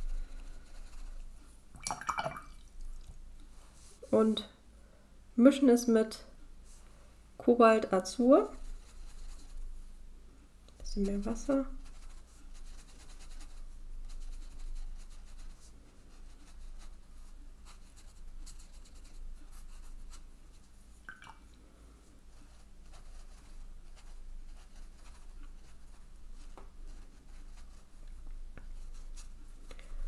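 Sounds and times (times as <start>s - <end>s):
brush scratching on paper: 0.0s - 1.5s, 8.4s - 10.0s, 10.8s - 21.0s, 22.3s - 29.7s.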